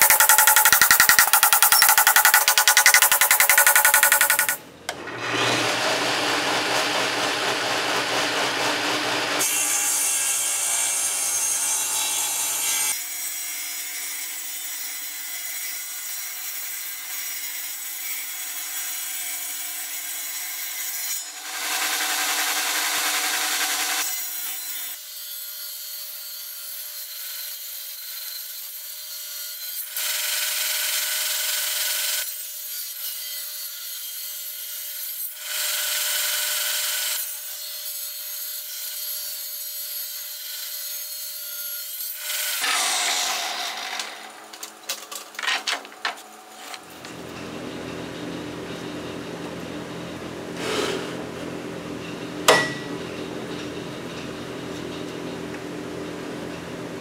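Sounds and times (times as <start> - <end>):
power saw cutting board: 0.0 - 13.0, 42.2 - 44.8, 50.6 - 51.2.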